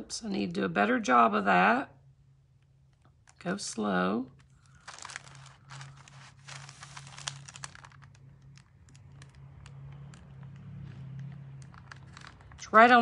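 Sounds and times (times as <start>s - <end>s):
low steady hum: 0.0s - 13.0s
paper rustling: 4.4s - 12.7s.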